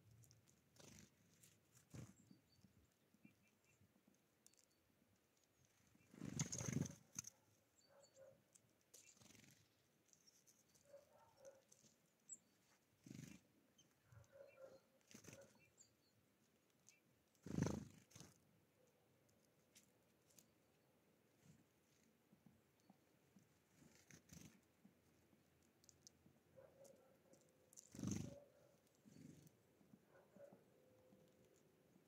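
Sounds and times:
birds pecking on wooden feeder: 0:00.0 - 0:07.3, 0:08.4 - 0:14.4, 0:15.0 - 0:32.0
bird wings fluttering: 0:06.0 - 0:07.3, 0:17.4 - 0:18.4, 0:27.9 - 0:28.4.

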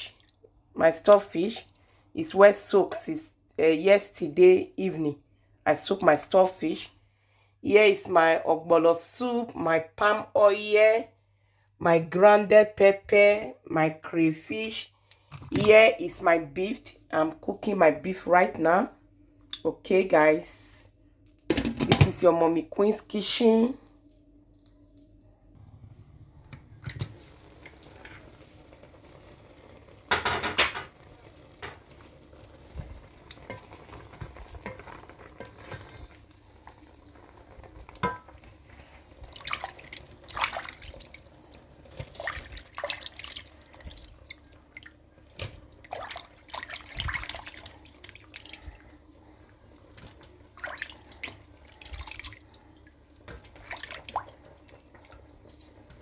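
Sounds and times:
water splashes and drips: 0:00.0 - 0:02.0, 0:39.1 - 0:56.0.

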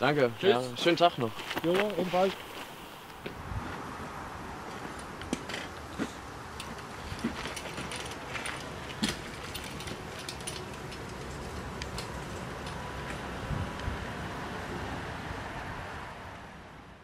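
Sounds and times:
tyres hissing: 0:00.0 - 0:03.4
bicycle chain clicks and rattles: 0:04.8 - 0:05.8, 0:06.5 - 0:13.2.

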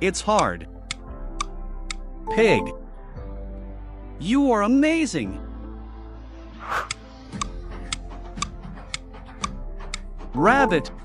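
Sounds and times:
countdown timer ticking: 0:00.0 - 0:02.8
background music: 0:00.0 - 0:11.0.

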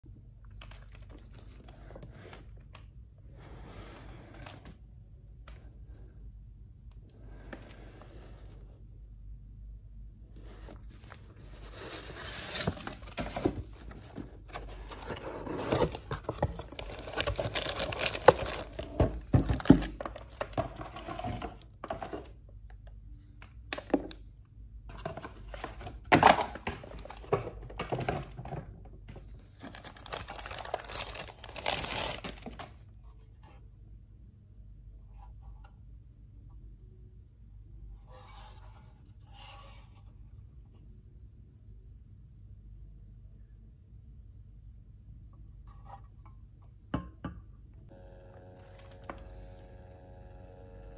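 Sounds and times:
plastic packaging crinkling: 0:14.5 - 0:21.6, 0:29.5 - 0:32.8.

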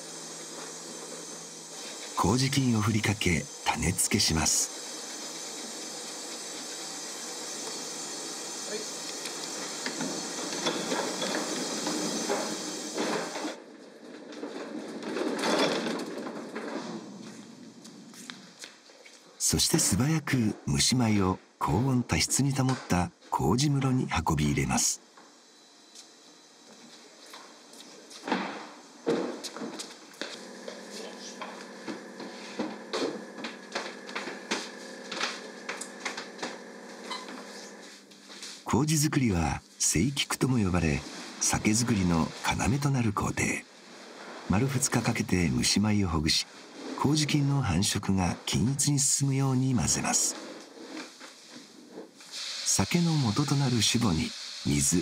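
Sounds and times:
steady hum: 0:00.0 - 0:13.5, 0:30.2 - 0:50.4
steady hiss with knocks and clatter: 0:00.0 - 0:23.4, 0:24.4 - 0:55.0
wooden box scraping across floor: 0:09.8 - 0:18.6, 0:43.8 - 0:45.2, 0:50.2 - 0:52.4.

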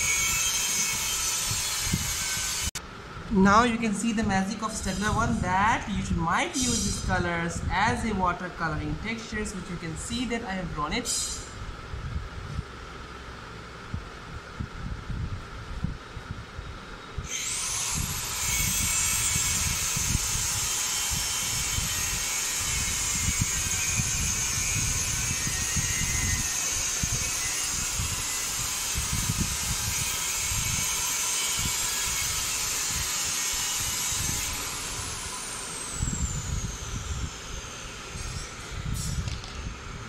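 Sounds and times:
small electric motor whining: 0:00.0 - 0:02.8, 0:17.2 - 0:40.0.

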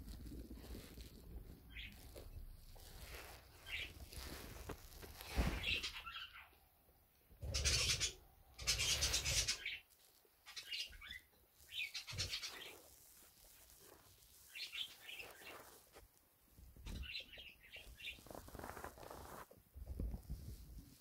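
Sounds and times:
fabric rustling: 0:00.0 - 0:06.2, 0:11.6 - 0:21.0
guinea pigs squeaking: 0:00.0 - 0:06.6, 0:07.4 - 0:15.8.

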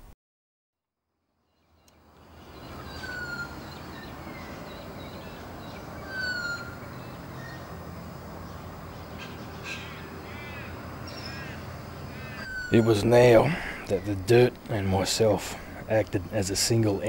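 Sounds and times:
birds whistling and chirping: 0:02.3 - 0:07.8, 0:11.1 - 0:14.4.

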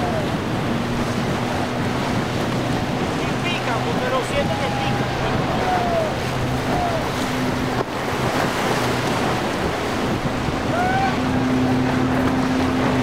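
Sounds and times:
motorboat engine hum: 0:00.0 - 0:13.0
rushing water and surf: 0:00.0 - 0:13.0
wind buffeting microphone: 0:00.0 - 0:13.0.

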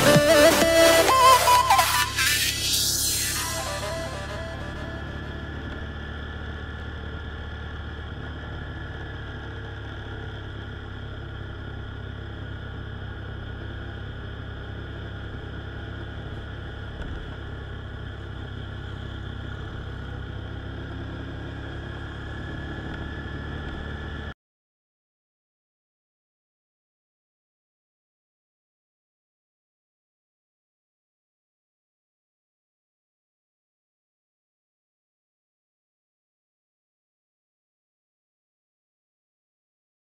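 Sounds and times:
motorcycle engine cruising: 0:00.0 - 0:24.4.

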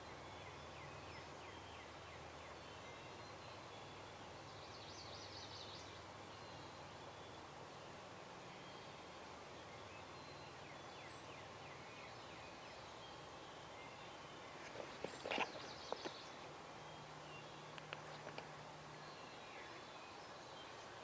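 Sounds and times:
faint songbird chirps: 0:00.0 - 0:21.0.

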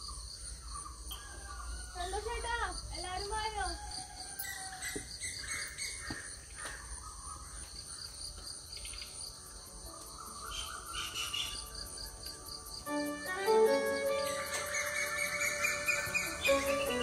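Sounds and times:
insects trilling: 0:00.0 - 0:17.0
bird chirps: 0:10.0 - 0:17.0.

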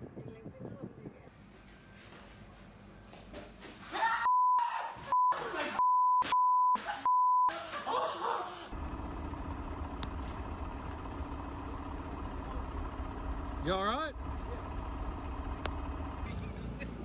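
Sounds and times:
man screaming: 0:03.9 - 0:05.8
people shouting: 0:03.9 - 0:05.8
censor beep tones: 0:04.3 - 0:07.5
people laughing: 0:06.8 - 0:08.8, 0:16.3 - 0:17.0
steady low rumble: 0:08.8 - 0:17.0.

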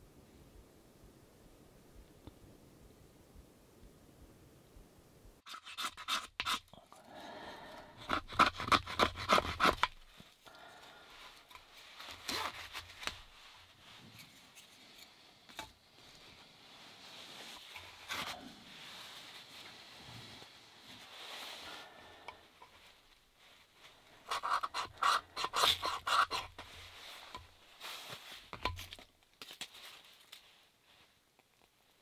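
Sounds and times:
knife scraping wood: 0:05.5 - 0:07.0, 0:07.9 - 0:10.1, 0:11.3 - 0:13.4, 0:24.2 - 0:29.0.

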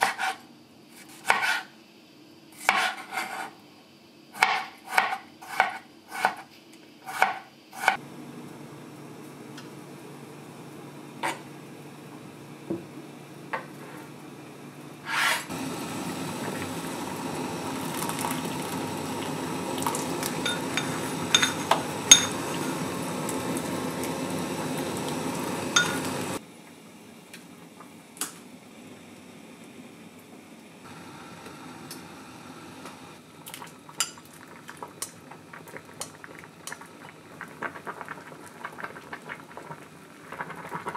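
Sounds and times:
broth bubbling in a pot: 0:15.5 - 0:26.4, 0:33.2 - 0:40.9
tableware clinking against pot: 0:20.4 - 0:22.4, 0:25.8 - 0:26.1.

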